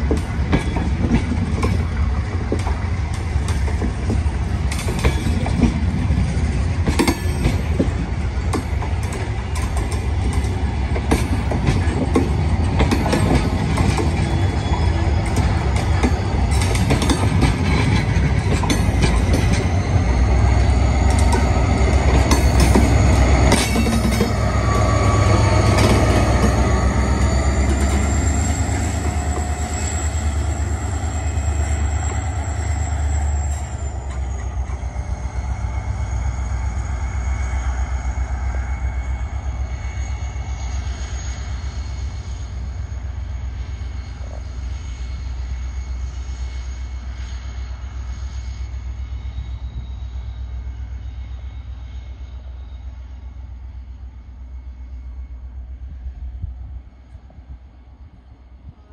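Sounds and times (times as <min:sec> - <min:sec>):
wheels clicking over rail joints: 0:00.0 - 0:20.0, 0:21.0 - 0:30.6
locomotive engine rumbling: 0:00.0 - 0:58.9
wheel flanges squealing: 0:00.1 - 0:46.2.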